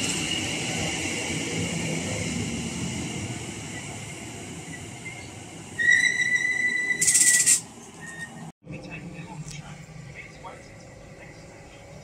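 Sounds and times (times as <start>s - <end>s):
train wheels rumbling on rails: 0.0s - 12.0s
high-pitched squeal: 4.6s - 8.5s.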